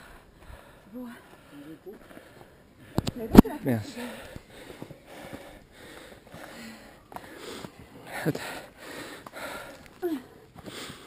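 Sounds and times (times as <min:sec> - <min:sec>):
person breathing hard: 0:04.0 - 0:11.0.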